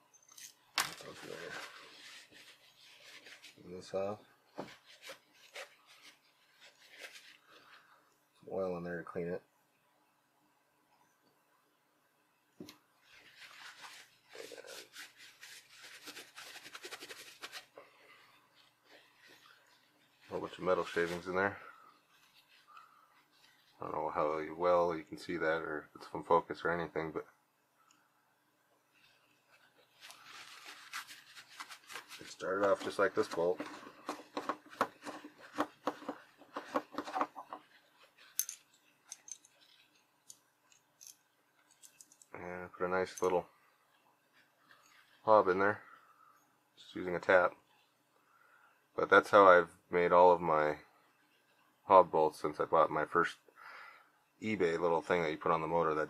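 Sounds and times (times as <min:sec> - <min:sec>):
paper towel rustling and rubbing: 0:01.0 - 0:08.0, 0:13.0 - 0:24.6, 0:28.9 - 0:38.4.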